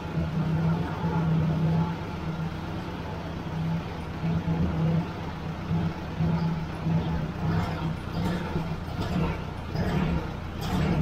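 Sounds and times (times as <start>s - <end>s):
tractor engine idling unevenly: 0.0s - 11.0s.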